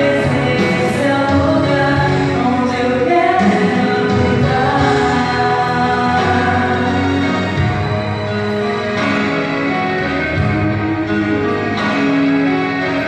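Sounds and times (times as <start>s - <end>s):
woman singing: 0.0s - 7.7s
instrumental backing: 0.0s - 13.0s.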